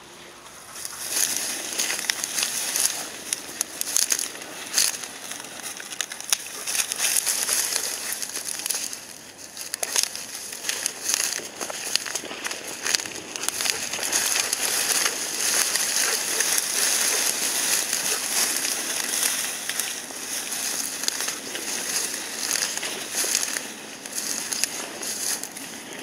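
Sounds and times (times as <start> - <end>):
rustling through dry weeds: 0.0 - 26.0.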